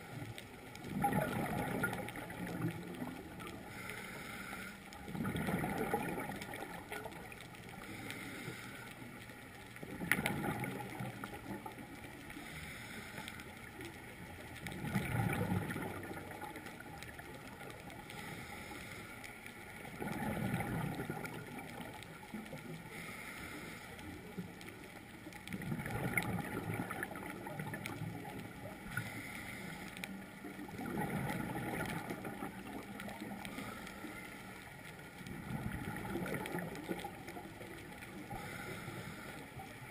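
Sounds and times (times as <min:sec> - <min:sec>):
steady hiss: 0:00.0 - 0:15.0, 0:15.7 - 0:39.9
underwater breath bubbles: 0:00.8 - 0:09.1, 0:09.8 - 0:11.8, 0:14.7 - 0:16.8, 0:18.1 - 0:21.9, 0:25.5 - 0:34.6, 0:35.2 - 0:39.9.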